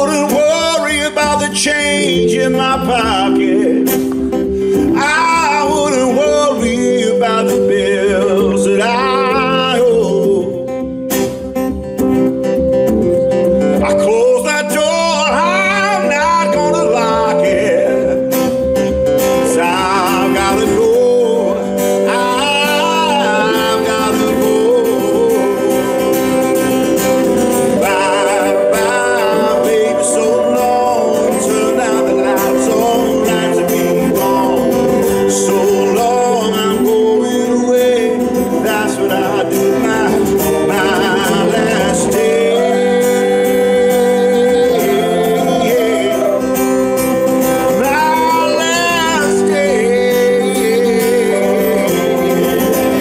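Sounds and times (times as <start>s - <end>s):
man singing: 0.0s - 11.1s, 13.6s - 53.0s
keyboard accompaniment: 0.0s - 53.0s
strummed acoustic guitar: 0.0s - 53.0s.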